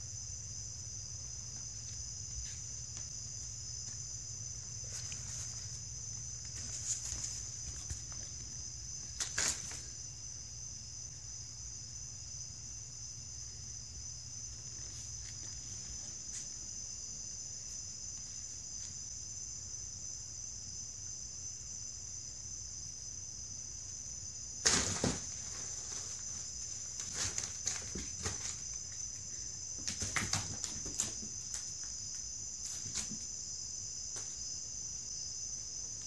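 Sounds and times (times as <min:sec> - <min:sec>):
cat scrambling in nylon tunnel: 0:24.6 - 0:28.8.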